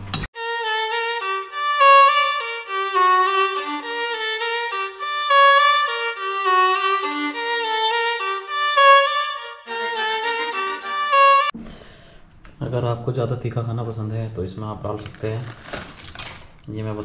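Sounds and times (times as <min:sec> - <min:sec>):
violin melody: 0:00.4 - 0:11.6.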